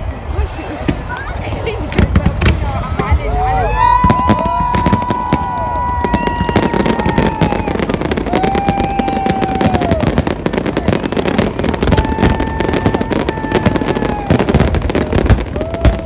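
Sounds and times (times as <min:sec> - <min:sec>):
fireworks crackling and popping: 0:00.0 - 0:16.0
fireworks whistling: 0:03.8 - 0:16.0.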